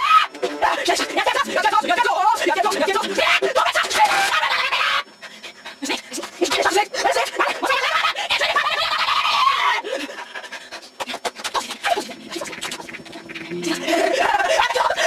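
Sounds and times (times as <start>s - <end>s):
cartoon voice shouting and panting: 0.6s - 4.3s
manic laughter: 0.9s - 5.1s, 7.0s - 15.0s
low drawn-out vocal note: 12.0s - 14.2s.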